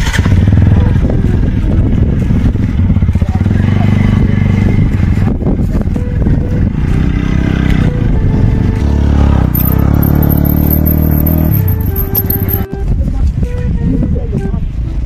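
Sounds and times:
motorcycle engine passing by: 6.7s - 12.6s.

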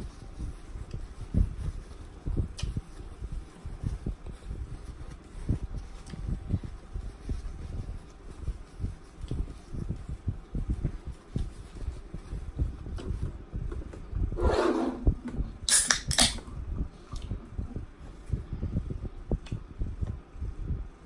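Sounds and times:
paper napkin rustling: 0.0s - 13.3s.

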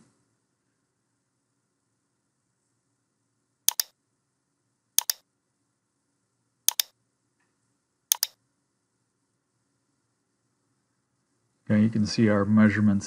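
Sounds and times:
computer mouse button clicking: 3.7s - 3.9s, 5.0s - 5.2s, 6.7s - 6.9s, 8.1s - 8.4s.

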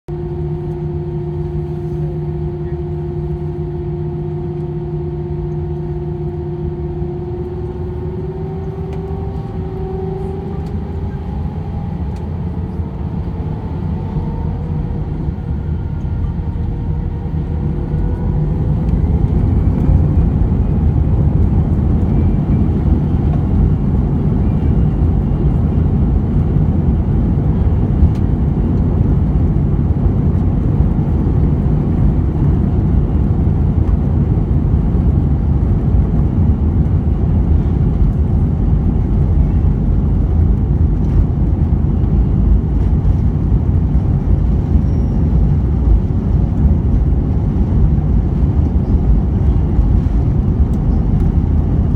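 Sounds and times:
jet engines roaring at takeoff: 0.1s - 51.9s.

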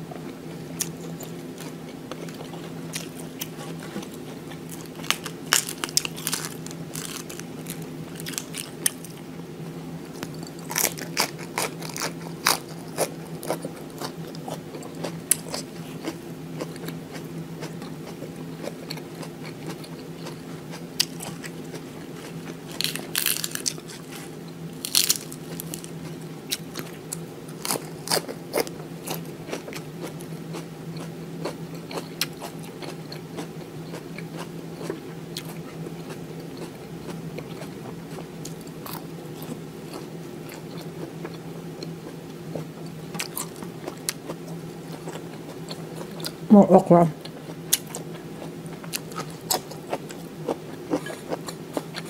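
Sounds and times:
person crunching lettuce: 0.8s - 9.2s, 10.2s - 17.0s, 21.0s - 29.8s.

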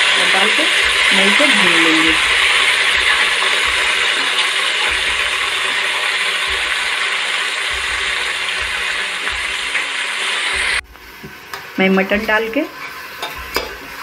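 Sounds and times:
meat sizzling in a pot: 0.0s - 14.0s
ladle scraping a metal pot: 12.7s - 14.0s.

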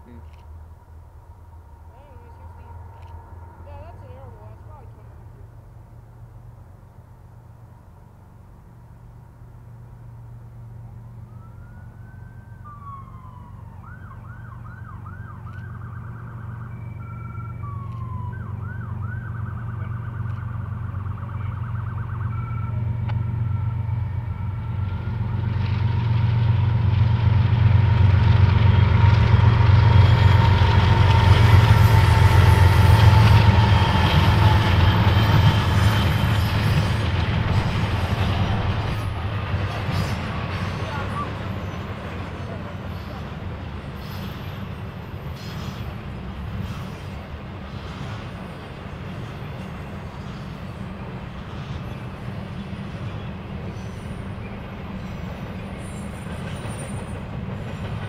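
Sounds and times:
diesel train rumbling: 0.0s - 12.0s, 16.0s - 58.0s
emergency siren wailing and yelping: 11.2s - 23.8s
train wheels on rails: 20.2s - 58.0s.

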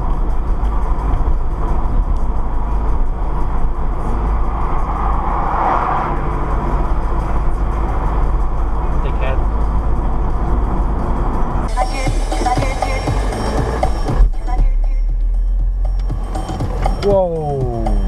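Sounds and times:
car road noise rumble: 0.0s - 18.0s
car passing close by: 3.2s - 8.9s.

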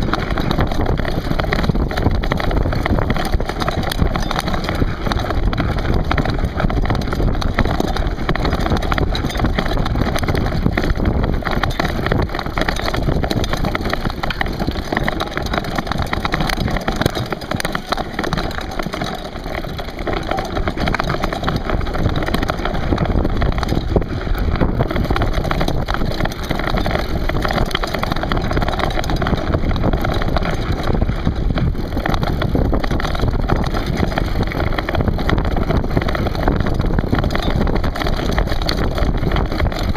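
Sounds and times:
bike tyres rattling over stones: 0.0s - 39.9s
wind on microphone: 0.0s - 39.9s.

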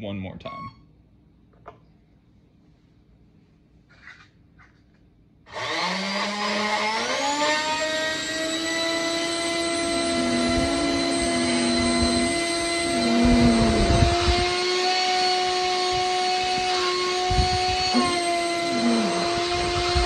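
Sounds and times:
high-pitched turbine whine: 6.7s - 20.0s
low surges: 9.8s - 14.6s.

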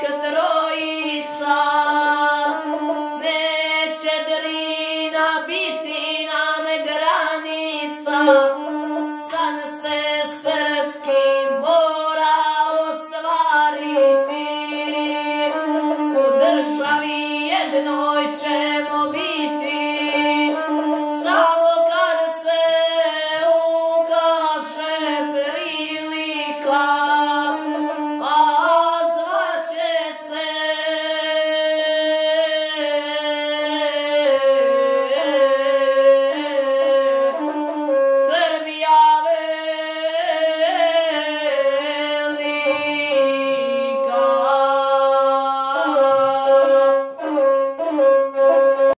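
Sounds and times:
boy singing epic song: 0.0s - 47.9s
bowed single-string fiddle: 0.0s - 48.9s.

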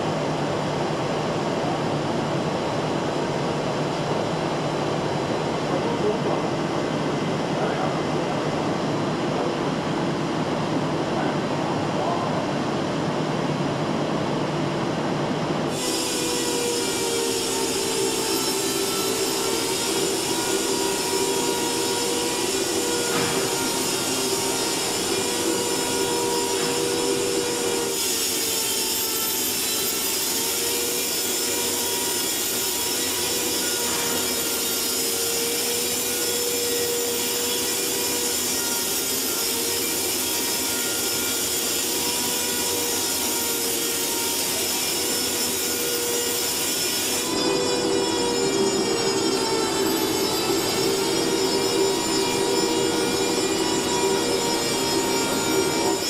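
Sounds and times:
spray air hissing: 15.7s - 25.7s.

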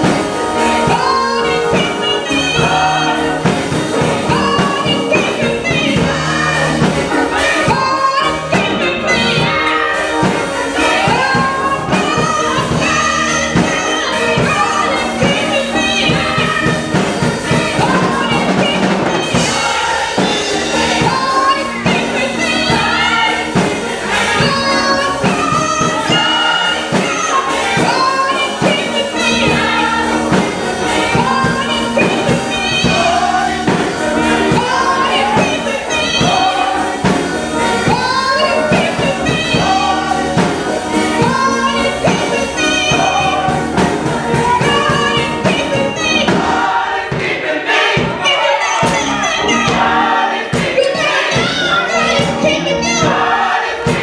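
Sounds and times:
gospel choir singing: 0.0s - 54.0s
instrumental accompaniment with beat: 0.0s - 54.0s.

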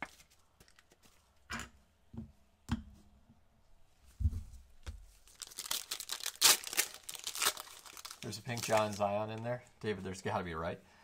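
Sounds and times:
foil wrapper crinkling: 5.2s - 9.4s.

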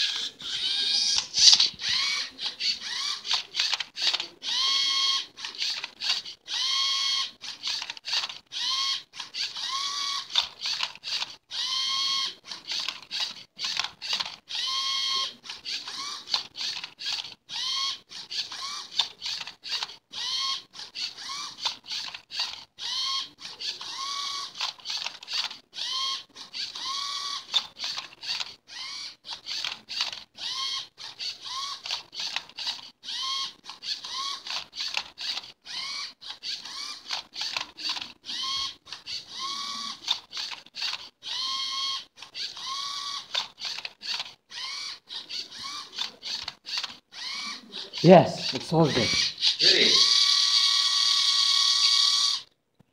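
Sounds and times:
servo motors whirring: 0.0s - 52.5s
plastic clicks and clacks: 3.3s - 4.4s, 36.3s - 38.2s.

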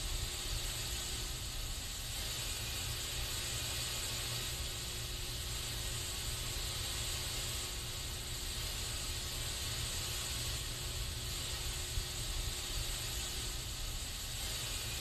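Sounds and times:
aerosol spray can hissing: 0.0s - 15.0s.

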